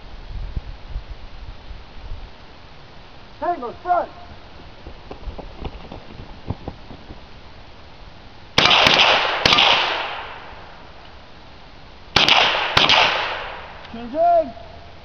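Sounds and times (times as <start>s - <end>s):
rifle shots with echo: 8.6s - 10.7s, 12.2s - 13.8s.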